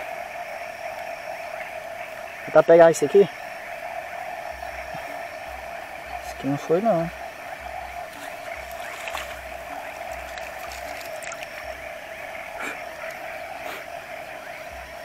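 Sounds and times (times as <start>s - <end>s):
frogs and insects chorus: 0.0s - 15.0s
soft low bumps: 7.1s - 12.1s.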